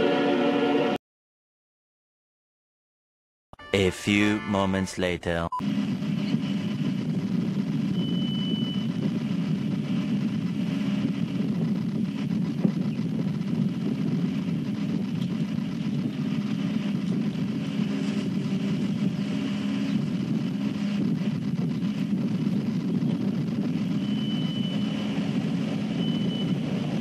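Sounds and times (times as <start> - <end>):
vehicle engine running steadily: 5.6 - 27.0.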